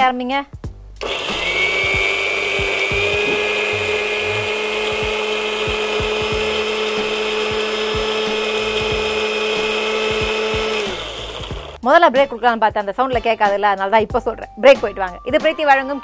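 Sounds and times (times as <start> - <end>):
mixer grinder motor running: 1.0 - 11.8.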